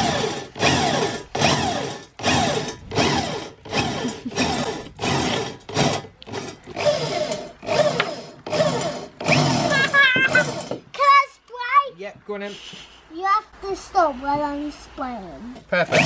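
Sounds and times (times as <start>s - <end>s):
electric drill boring through steel: 0.0s - 10.8s.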